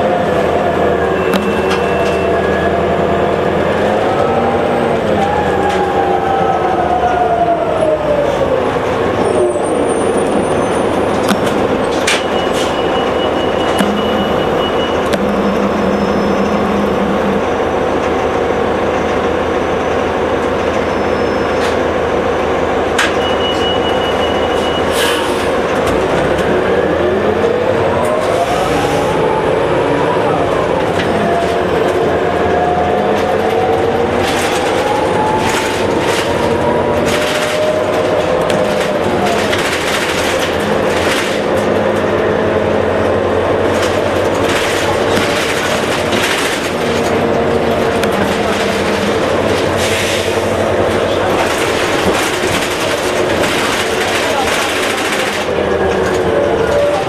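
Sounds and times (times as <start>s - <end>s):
transmission whining: 0.0s - 19.3s
diesel engine running: 0.0s - 57.0s.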